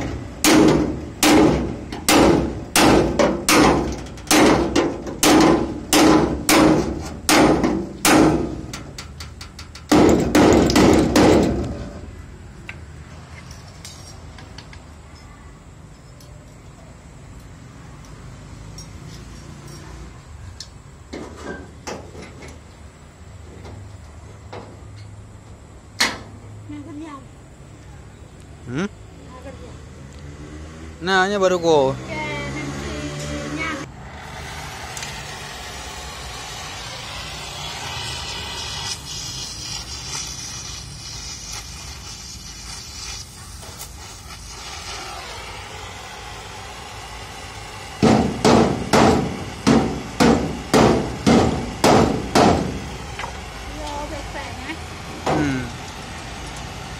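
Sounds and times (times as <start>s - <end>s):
sheet metal knocking and clanking: 0.0s - 11.7s
welding torch hissing: 33.0s - 56.9s.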